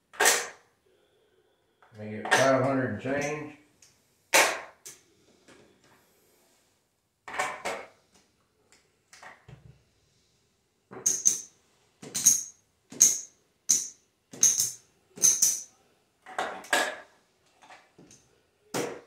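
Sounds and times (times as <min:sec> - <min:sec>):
casino chips clacking: 0:11.0 - 0:15.7.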